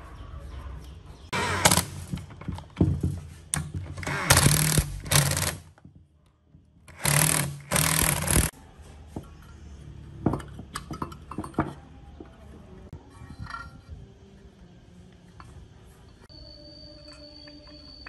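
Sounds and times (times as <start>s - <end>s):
cordless power driver bursts: 1.4s - 2.1s, 6.9s - 8.5s
small metal parts clicking: 6.9s - 8.5s.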